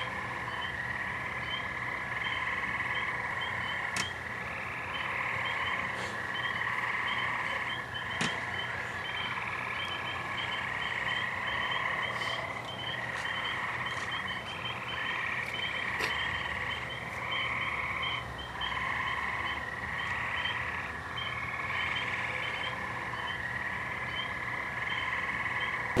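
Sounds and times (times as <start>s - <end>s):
frogs buzzing trill: 0.0s - 26.0s
rapid short frog chirps: 0.5s - 26.0s.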